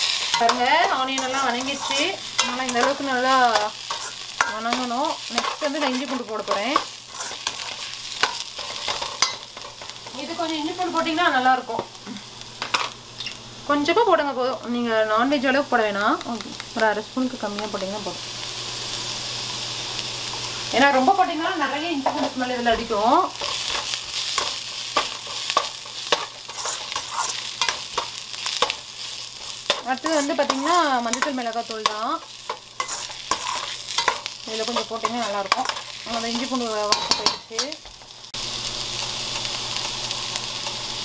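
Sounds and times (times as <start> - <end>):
metal spatula scraping a pan: 0.0 - 10.2, 23.3 - 38.1
onions sizzling in a pan: 0.0 - 41.0.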